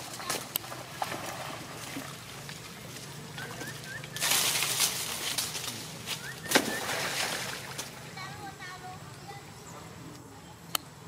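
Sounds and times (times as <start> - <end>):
water splashing: 0.0 - 8.6.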